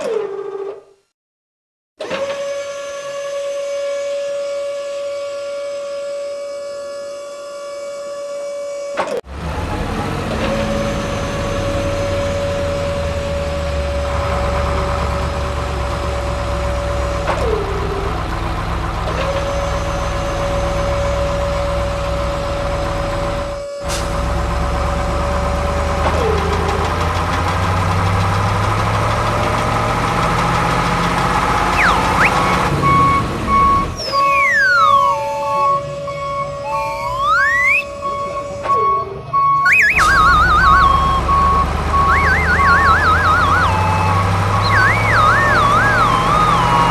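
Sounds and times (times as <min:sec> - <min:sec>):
truck engine rumble: 0:09.3 - 0:46.9
siren-like tone: 0:10.7 - 0:18.4, 0:19.1 - 0:22.8, 0:31.6 - 0:46.9
whistle-like glides: 0:31.7 - 0:46.9.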